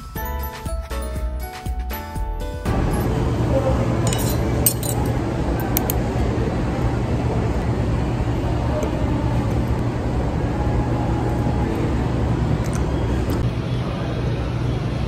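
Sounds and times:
low hum: 0:02.7 - 0:15.0
faint indistinct voices: 0:03.4 - 0:15.0.

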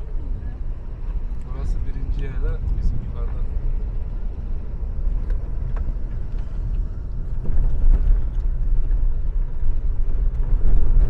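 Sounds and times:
car engine and tyres rumbling: 0:00.0 - 0:11.0.

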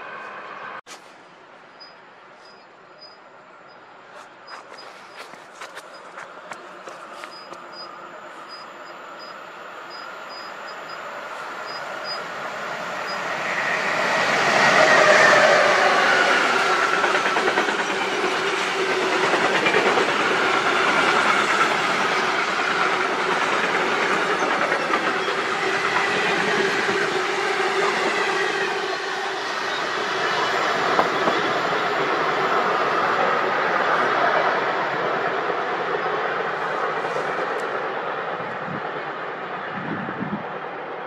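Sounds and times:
train passing: 0:00.0 - 0:41.0
wheels clattering on rails: 0:15.0 - 0:27.2, 0:29.6 - 0:33.3.

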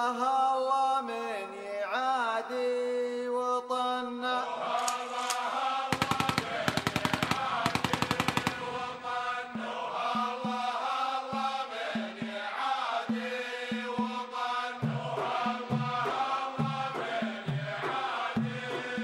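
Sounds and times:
chant-like melody: 0:03.9 - 0:19.0
fast drum beats: 0:05.9 - 0:19.0.

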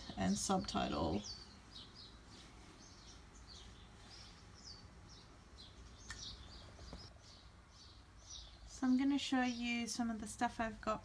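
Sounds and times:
small birds chirping: 0:00.0 - 0:11.0
sharp click: 0:06.0 - 0:06.3.

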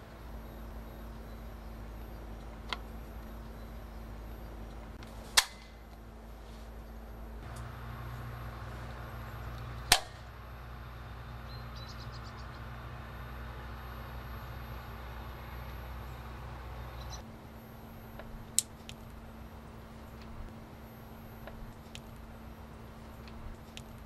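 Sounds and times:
steady low hum: 0:00.0 - 0:24.0
shears snipping line: 0:04.7 - 0:06.1, 0:07.4 - 0:10.4
trimmer spool snapping: 0:07.4 - 0:08.0, 0:08.8 - 0:10.3
faint ticks: 0:18.2 - 0:19.2, 0:23.2 - 0:24.0.

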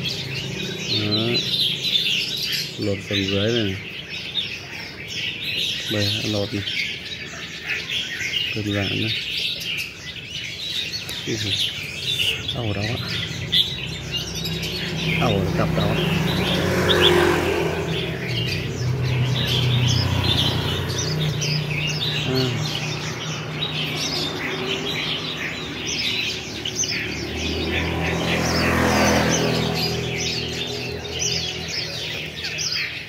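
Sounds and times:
birds chirping: 0:00.0 - 0:33.0.

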